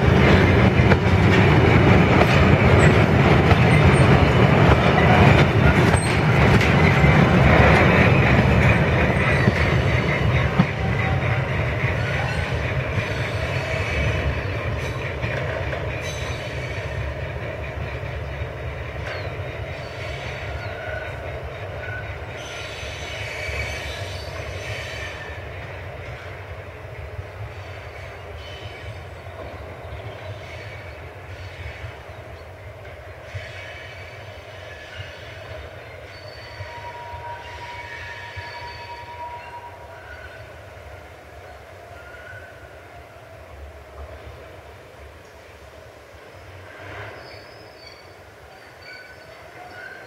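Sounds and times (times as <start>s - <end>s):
train rumbling: 0.0s - 50.0s
faint wheel squeals: 46.9s - 50.0s.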